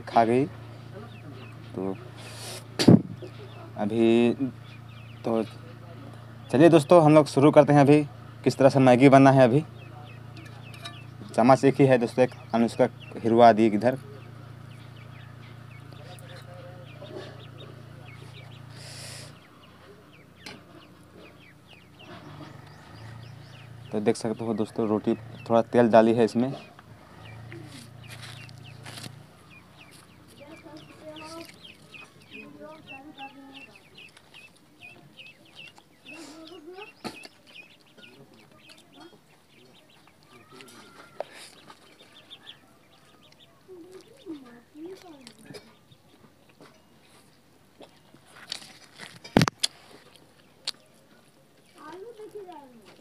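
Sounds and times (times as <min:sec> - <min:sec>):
steady low hum: 0:00.0 - 0:40.2
birds chirping: 0:00.0 - 0:53.0.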